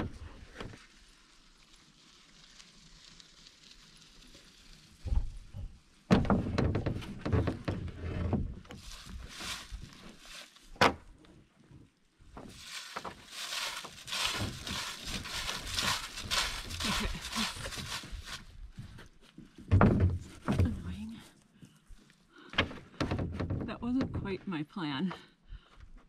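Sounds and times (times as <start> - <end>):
footsteps crunching dry leaves: 8.7 - 10.7, 12.4 - 18.8
knocks and rustling of gear: 12.3 - 21.0.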